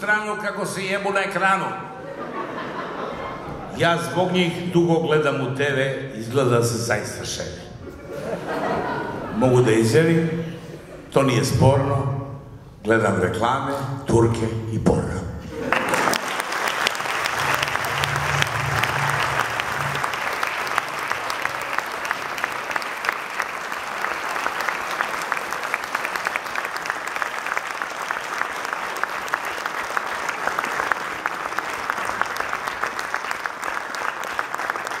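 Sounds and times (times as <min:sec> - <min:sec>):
audience applauding: 0:15.6 - 0:35.0.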